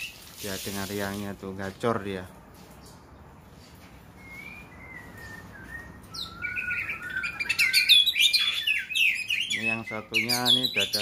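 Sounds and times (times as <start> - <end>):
songbird singing whistled notes: 4.1 - 11.0.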